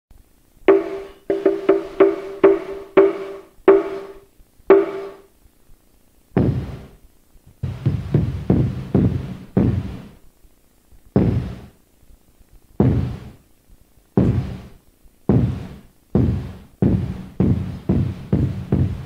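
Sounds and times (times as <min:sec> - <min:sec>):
large drum booming strikes: 0:00.7 - 0:05.2.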